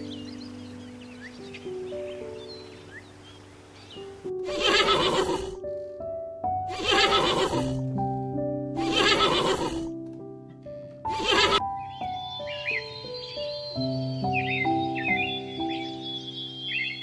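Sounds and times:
soft piano music: 0:00.0 - 0:17.0
horse whinnying: 0:04.4 - 0:05.6, 0:06.7 - 0:07.8, 0:08.8 - 0:09.9, 0:11.1 - 0:11.6.

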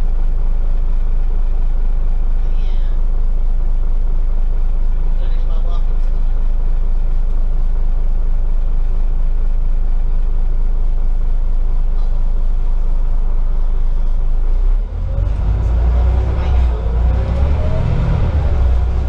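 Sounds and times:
bus engine idling: 0:00.0 - 0:19.0
bus engine revving pulling away: 0:14.4 - 0:19.0.

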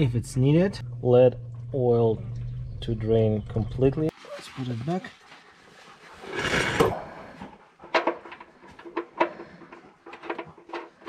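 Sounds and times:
rubbing scrape: 0:05.2 - 0:07.2.

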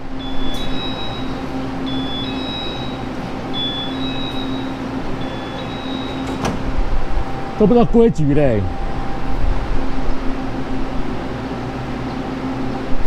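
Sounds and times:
standing train humming: 0:00.0 - 0:13.0
two-tone electronic warning chime: 0:00.1 - 0:06.5.

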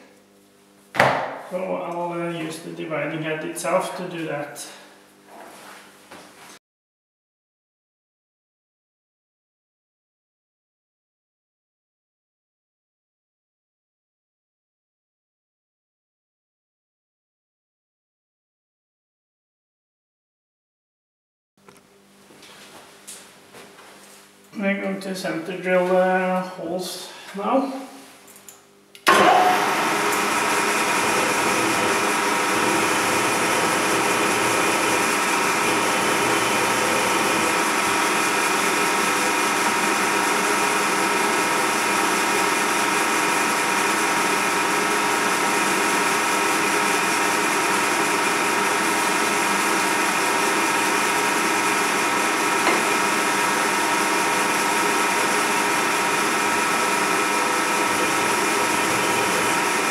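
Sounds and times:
milling machine whining: 0:29.0 - 0:59.9.

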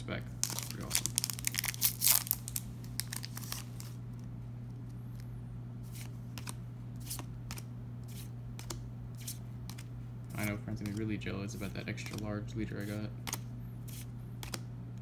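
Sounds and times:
low steady hum: 0:00.0 - 0:15.0
foil pack tearing and crinkling: 0:00.4 - 0:04.0
cards clicking: 0:06.0 - 0:14.7.

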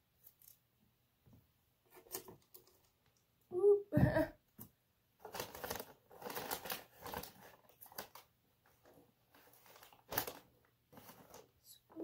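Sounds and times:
wrapping paper rustling: 0:05.2 - 0:12.0.

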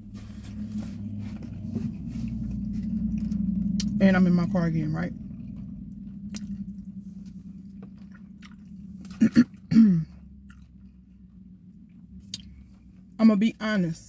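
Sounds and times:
person chewing food: 0:05.2 - 0:13.1.

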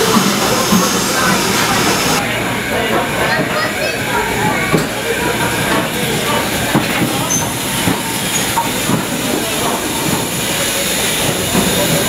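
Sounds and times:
train wheels rumbling on rails: 0:00.0 - 0:12.0
wheel squeals: 0:07.2 - 0:08.8.

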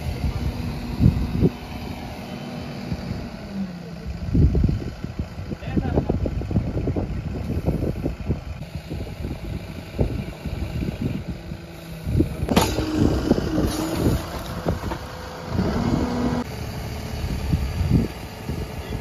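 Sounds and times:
backhoe diesel engine running: 0:00.0 - 0:19.0
sharp bang: 0:12.5 - 0:13.9.

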